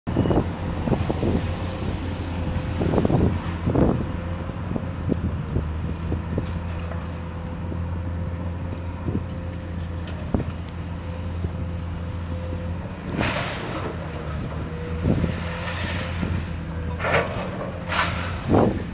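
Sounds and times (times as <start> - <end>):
scrap metal clanking: 15.4 - 18.6.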